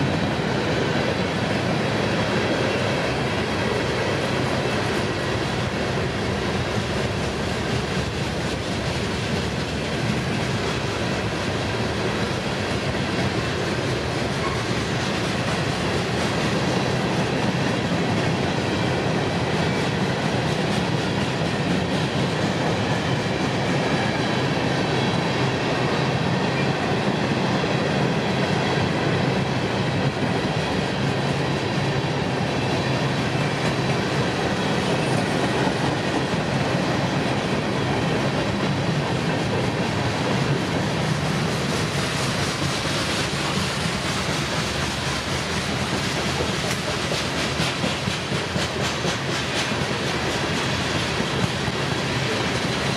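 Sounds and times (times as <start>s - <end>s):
train wheels rumbling on rails: 0.0s - 52.9s.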